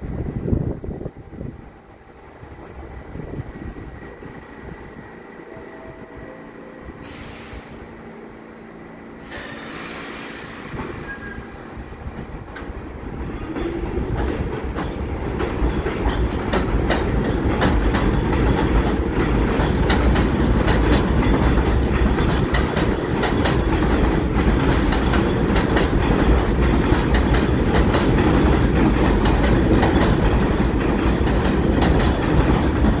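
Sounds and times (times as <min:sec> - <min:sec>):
subway train rumbling on rails: 0:00.0 - 0:33.0
clicking over rail joints: 0:12.2 - 0:33.0.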